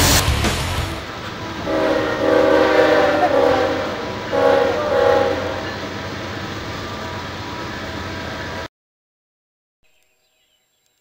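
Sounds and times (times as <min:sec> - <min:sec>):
passing train rumble: 0:00.0 - 0:08.7
locomotive air horn chord: 0:01.0 - 0:06.0.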